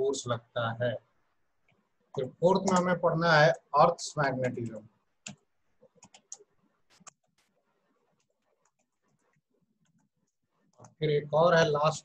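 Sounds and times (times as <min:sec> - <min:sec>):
typing on keyboard: 0:02.6 - 0:02.9, 0:04.4 - 0:07.4.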